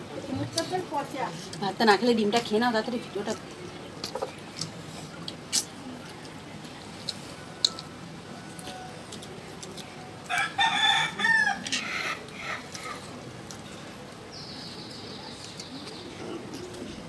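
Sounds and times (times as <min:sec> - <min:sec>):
rooster crowing: 0:10.3 - 0:12.2.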